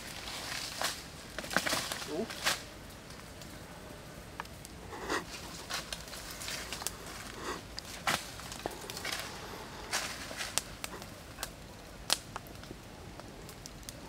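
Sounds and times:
campfire crackling and popping: 0:00.0 - 0:14.0
footsteps crunching dry leaves: 0:07.9 - 0:10.8.

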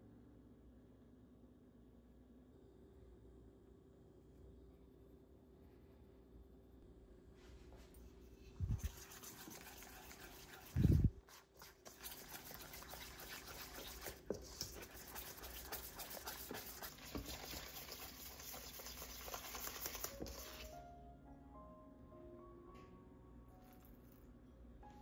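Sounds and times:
whisk clicking in metal bowl: 0:08.7 - 0:20.7.

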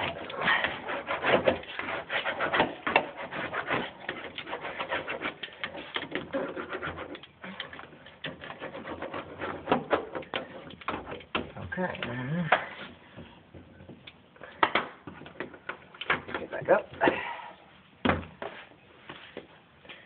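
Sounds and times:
hand roller rubbing on mat: 0:00.0 - 0:11.2.

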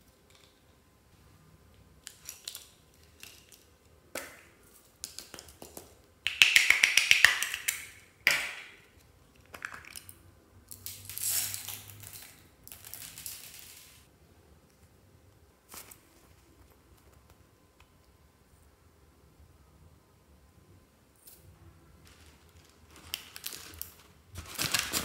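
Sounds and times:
plastic beads rattling: 0:11.0 - 0:14.0
beads pouring with soft hiss: 0:11.1 - 0:14.1, 0:22.0 - 0:24.1.

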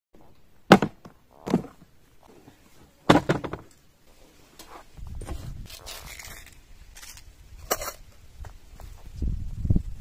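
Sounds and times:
plastic gun case knocks and thuds: 0:00.7 - 0:01.8, 0:03.1 - 0:03.7.

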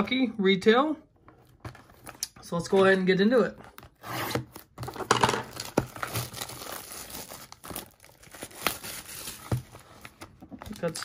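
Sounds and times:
plastic wrap crinkling: 0:03.7 - 0:11.0.

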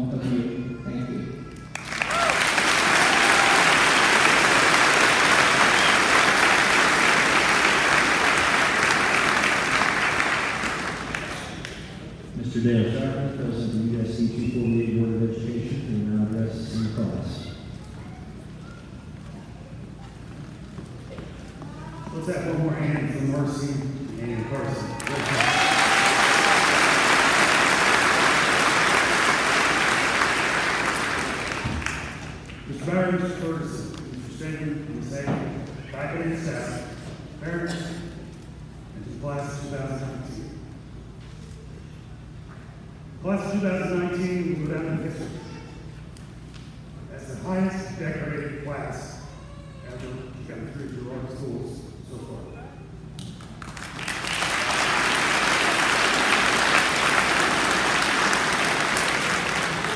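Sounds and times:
audience applauding: 0:01.7 - 0:11.9, 0:24.8 - 0:32.7, 0:53.4 - 0:59.9.

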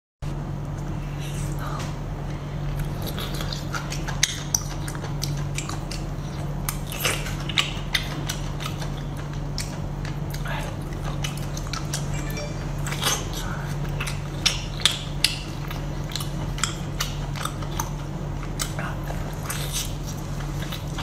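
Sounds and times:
low hum: 0:11.3 - 0:16.0.

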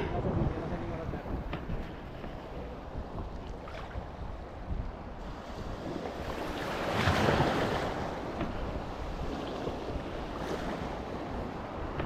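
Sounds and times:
wind buffeting microphone: 0:00.0 - 0:12.0
sea surf washing in: 0:05.2 - 0:12.0.

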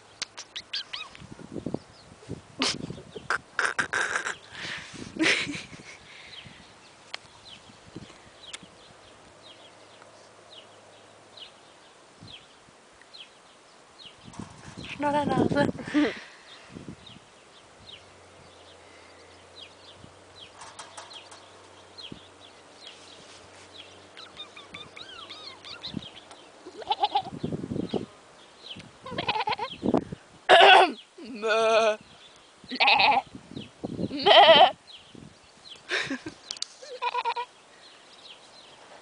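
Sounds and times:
sheep bleating: 0:34.2 - 0:34.8.

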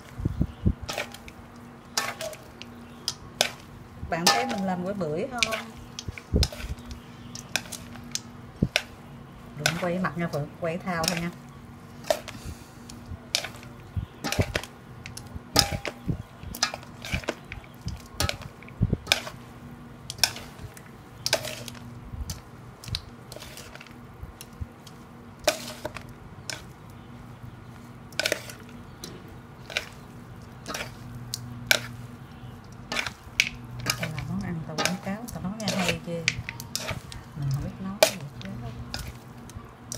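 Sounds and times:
low steady hum: 0:00.0 - 0:39.9
chopsticks knocking metal bowl: 0:04.2 - 0:05.6.

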